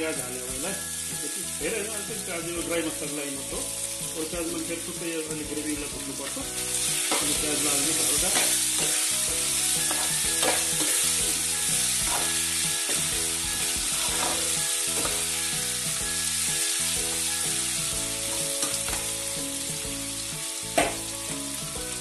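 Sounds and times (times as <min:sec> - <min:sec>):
food sizzling in hot oil: 0:00.0 - 0:22.0
metal spoon scraping pan: 0:06.8 - 0:13.2, 0:13.9 - 0:15.4.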